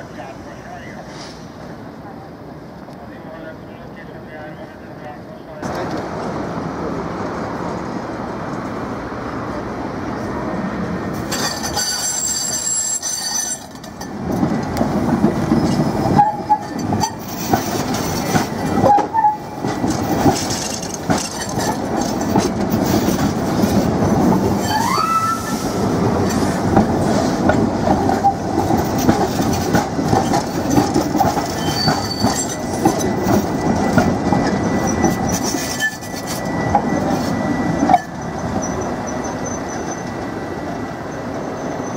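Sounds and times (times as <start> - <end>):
tram wheels rumbling over rail joints: 0.0 - 41.9
high-pitched wheel squeal: 11.8 - 13.6, 24.6 - 25.6, 31.5 - 33.4, 34.3 - 41.9.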